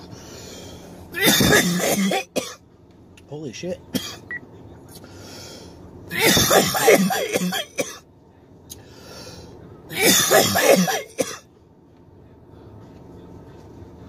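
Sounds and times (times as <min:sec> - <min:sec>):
man coughing: 0:01.2 - 0:02.6, 0:03.9 - 0:04.3, 0:06.2 - 0:08.0, 0:09.9 - 0:11.4.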